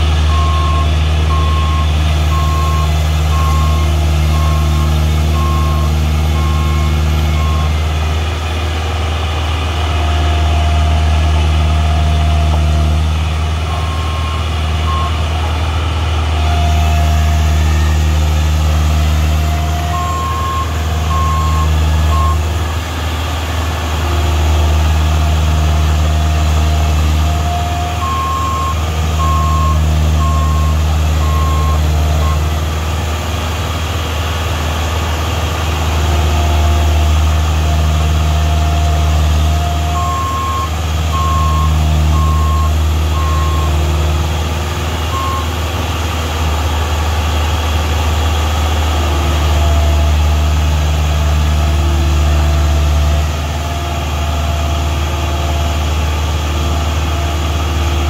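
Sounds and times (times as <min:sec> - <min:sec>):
reversing alarm beeping: 0:00.0 - 0:07.8, 0:13.7 - 0:15.2, 0:16.7 - 0:22.5, 0:27.1 - 0:32.6, 0:39.4 - 0:44.0, 0:45.1 - 0:45.6
heavy diesel engine revving: 0:00.0 - 0:58.0.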